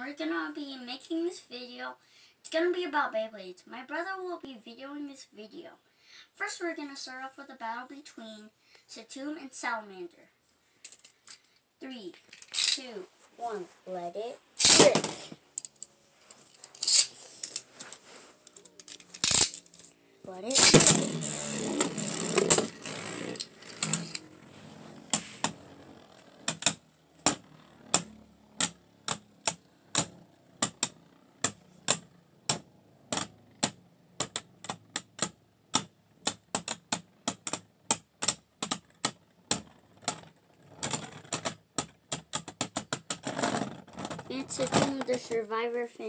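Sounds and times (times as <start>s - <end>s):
spinning tops clacking together: 12.3s - 12.9s, 14.6s - 24.3s
spinning tops whirring: 12.3s - 12.9s, 14.6s - 32.3s.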